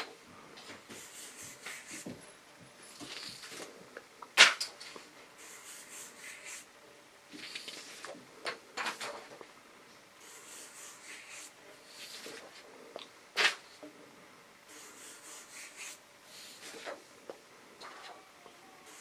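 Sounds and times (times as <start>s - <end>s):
marker scratching on paper: 0.9s - 2.2s, 5.4s - 6.7s, 10.2s - 12.5s, 14.7s - 17.0s.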